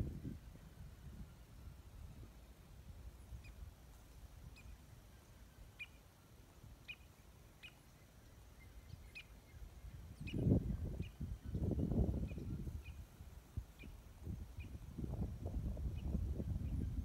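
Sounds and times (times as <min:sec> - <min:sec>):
birds chirping: 0:03.2 - 0:13.1.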